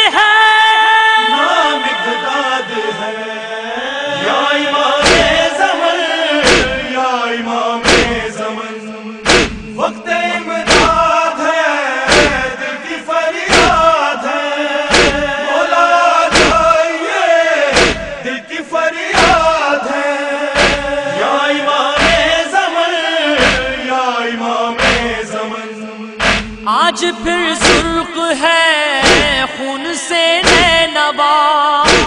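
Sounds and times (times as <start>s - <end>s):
men chanting in unison: 1.2s - 31.1s
chest-beating thumps: 5.0s - 5.5s, 6.4s - 6.9s, 7.8s - 8.4s, 9.2s - 9.8s, 10.6s - 11.2s, 12.1s - 12.6s, 13.5s - 14.0s, 14.9s - 15.4s, 16.3s - 16.8s, 17.7s - 18.2s, 19.2s - 19.6s, 20.6s - 21.0s, 21.9s - 22.4s, 23.4s - 23.8s, 24.8s - 25.2s, 26.2s - 26.7s, 27.6s - 28.0s, 29.0s - 29.5s, 30.4s - 30.9s.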